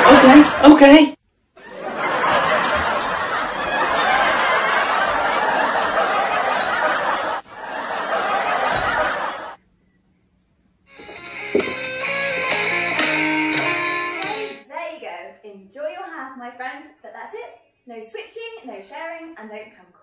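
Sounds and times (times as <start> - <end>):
audience laughing: 0.0 - 0.8, 1.6 - 9.6.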